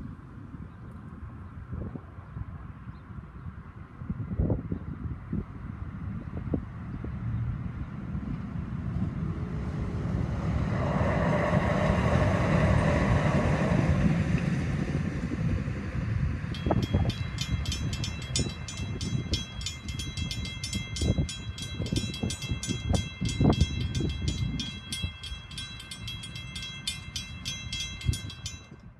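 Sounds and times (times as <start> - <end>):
light rail train rumbling past: 6.7 - 28.9
crossing bells ringing: 16.5 - 28.9.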